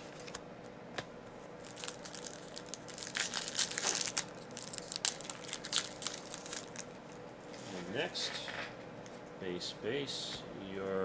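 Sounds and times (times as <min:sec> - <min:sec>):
foil wrapper tearing and crinkling: 0:01.6 - 0:07.8.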